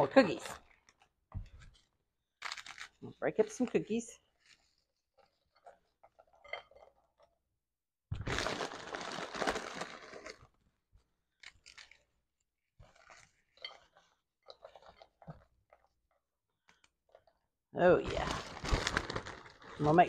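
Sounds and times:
cookies crunching and cracking: 0.6s - 3.7s, 4.3s - 7.4s, 8.2s - 17.5s, 18.2s - 19.8s
plastic package rustling: 8.2s - 10.5s, 18.0s - 20.0s.

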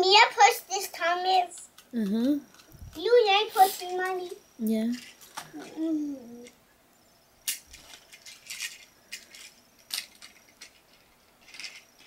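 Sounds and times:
plastic toy train clattering on track: 7.4s - 12.0s.

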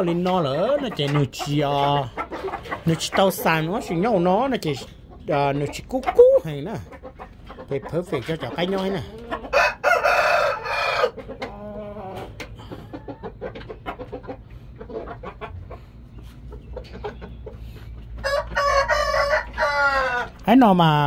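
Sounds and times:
chickens clucking: 0.0s - 21.0s
chickens scratching: 0.0s - 21.0s
rooster crowing: 9.6s - 11.2s, 18.2s - 20.3s.

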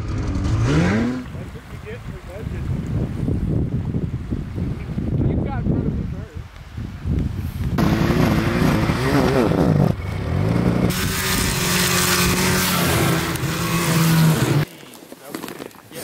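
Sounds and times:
snowmobile engine revving: 0.0s - 1.4s, 7.8s - 14.7s.

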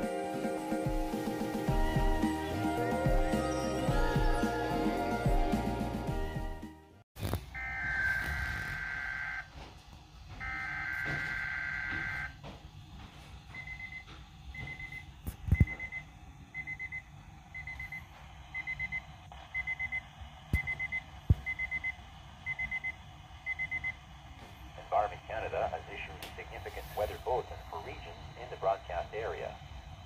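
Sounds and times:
buzzy data tones: 7.6s - 9.5s
short high alarm beeps: 19.6s - 20.0s.

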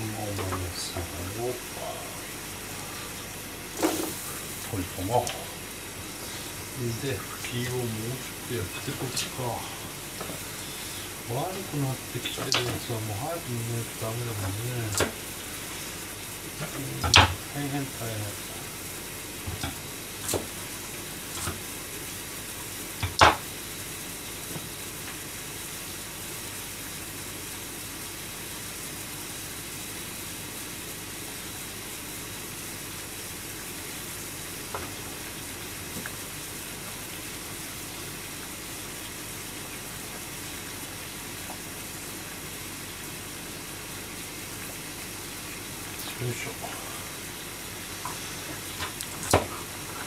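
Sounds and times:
gas burner: 0.0s - 25.2s
pot of water boiling: 0.0s - 50.0s
range hood fan running: 0.0s - 50.0s.

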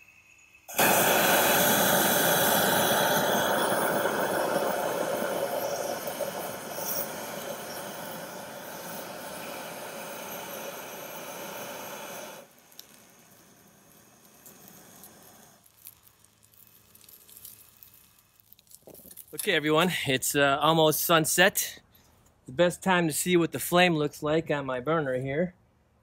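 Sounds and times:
gas burner rushing: 0.7s - 15.7s.

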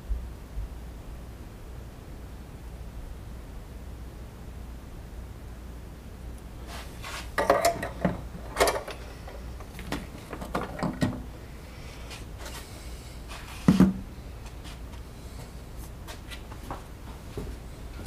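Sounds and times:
low steady hum: 0.0s - 18.0s
objects knocking and clattering: 7.4s - 11.3s.

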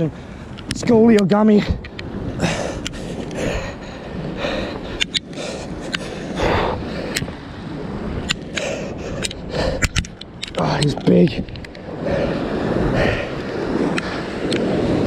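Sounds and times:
person breathing hard: 2.4s - 7.3s, 8.4s - 10.1s, 11.9s - 13.4s
sharp clicks: 8.2s - 11.8s.

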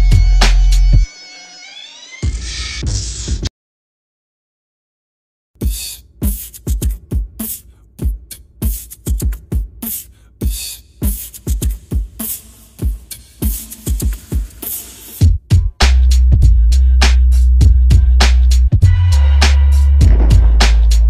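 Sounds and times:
music with punchy beat: 0.0s - 1.1s, 5.6s - 21.0s.

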